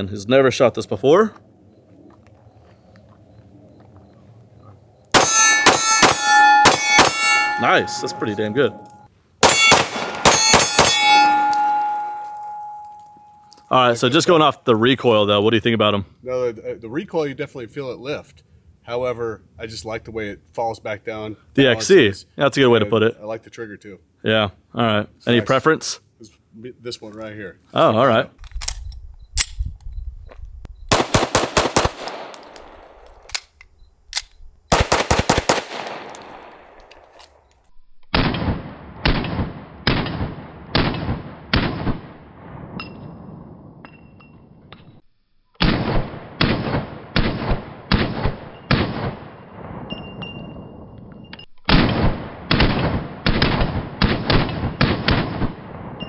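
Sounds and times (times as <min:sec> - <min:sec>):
pistol shots: 0:05.1 - 0:12.9, 0:30.9 - 0:33.4, 0:34.7 - 0:37.0, 0:38.1 - 0:42.2, 0:45.6 - 0:50.6, 0:51.7 - 0:56.0
faint high ring: 0:05.2 - 0:13.7.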